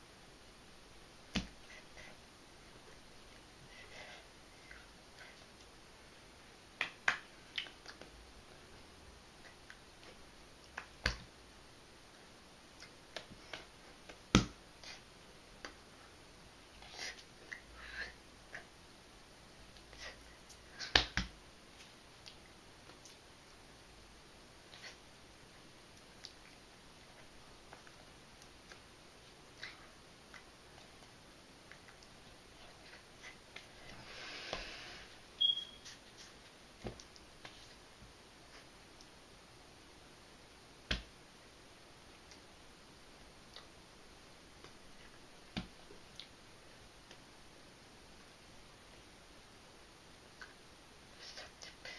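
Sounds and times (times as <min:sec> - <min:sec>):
small clicks and mouth noises: 0:04.6 - 0:05.8, 0:06.8 - 0:08.2, 0:09.4 - 0:11.3, 0:12.7 - 0:15.0, 0:16.8 - 0:17.7, 0:19.7 - 0:23.6, 0:25.9 - 0:34.0, 0:35.5 - 0:37.9, 0:38.5 - 0:39.2, 0:42.1 - 0:42.5, 0:43.4 - 0:43.8, 0:44.6 - 0:46.4, 0:47.0 - 0:47.3, 0:50.3 - 0:51.9
hands slapping together: 0:06.8 - 0:08.1, 0:10.7 - 0:11.3, 0:20.8 - 0:21.3
breathy rush of noise: 0:33.2 - 0:35.3
faint taps and clicks: 0:36.8 - 0:37.7, 0:40.9 - 0:41.1, 0:45.5 - 0:46.3.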